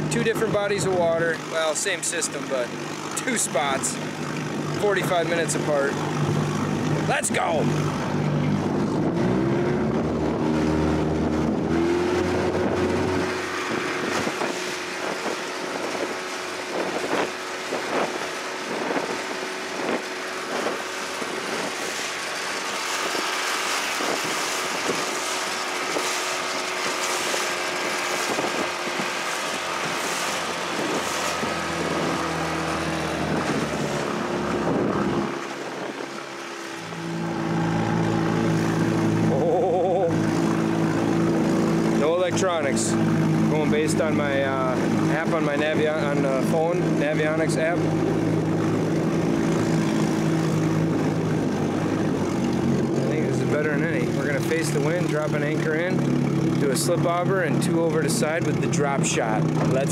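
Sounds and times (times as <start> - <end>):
hull slapping on waves: 0.0 - 59.9
outboard motor running: 0.0 - 59.9
wind on microphone: 6.0 - 42.0, 42.9 - 54.2.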